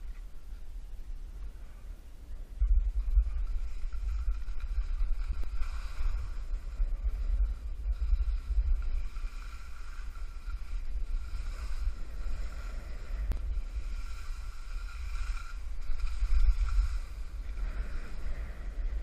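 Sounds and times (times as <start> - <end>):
wind buffeting the microphone: 0.0 - 19.0
skis sliding on snow: 3.0 - 18.6.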